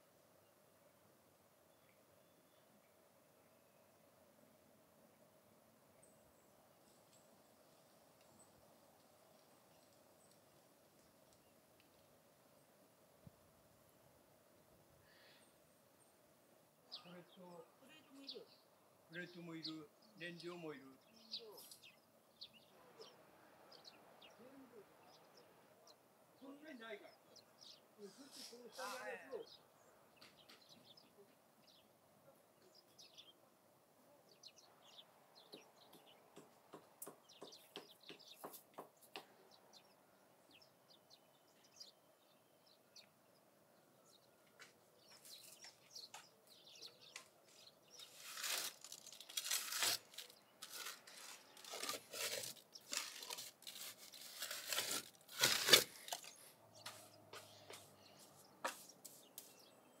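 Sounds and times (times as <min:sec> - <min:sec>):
rustling and scraping: 0:47.0 - 0:59.7.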